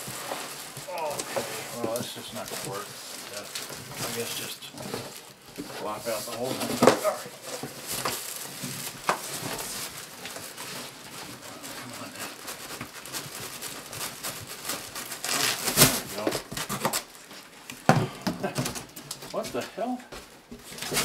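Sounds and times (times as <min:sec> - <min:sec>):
cardboard boxes scraping: 0:00.0 - 0:17.1, 0:20.6 - 0:21.0.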